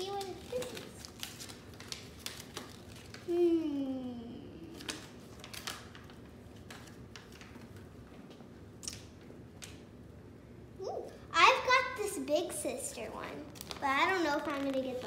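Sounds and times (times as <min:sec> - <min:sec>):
toy wrapper crinkling: 0:00.0 - 0:03.3, 0:13.5 - 0:15.0
child's wordless vocal sound: 0:03.3 - 0:04.9.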